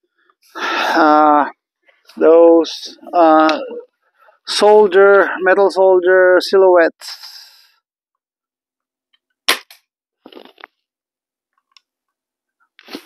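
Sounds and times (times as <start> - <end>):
air rifle shot crack: 9.5 - 9.8.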